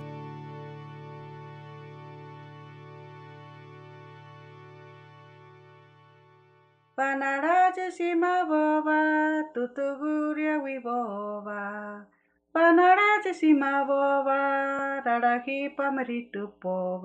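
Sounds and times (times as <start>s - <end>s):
person chanting unaccompanied: 7.0s - 12.0s, 12.6s - 17.0s.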